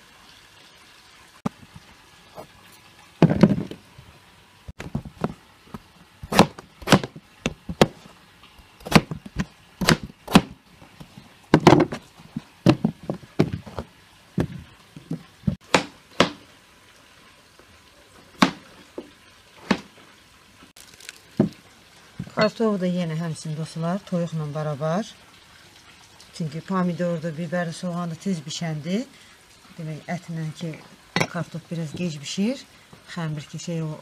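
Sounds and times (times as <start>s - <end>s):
knife chopping on wooden board: 6.2s - 8.0s, 8.8s - 10.6s, 14.4s - 16.4s, 18.4s - 18.7s, 19.6s - 19.9s.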